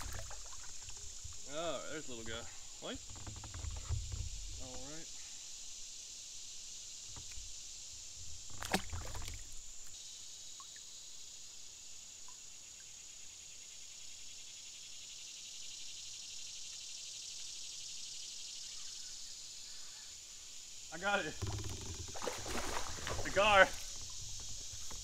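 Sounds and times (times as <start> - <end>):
bumping in a plastic kayak: 0.0 - 4.9, 7.1 - 7.6, 8.2 - 9.6, 21.3 - 25.0
high-pitched insect buzz: 13.0 - 25.0.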